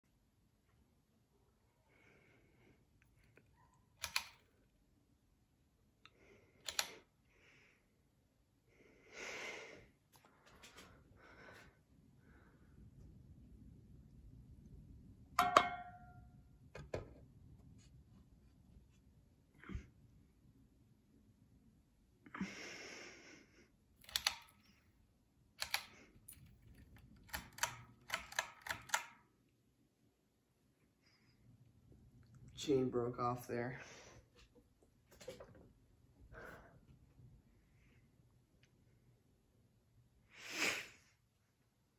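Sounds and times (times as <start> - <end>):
pull-chain switch clicking: 4.0 - 4.4, 24.0 - 24.6, 25.6 - 29.2.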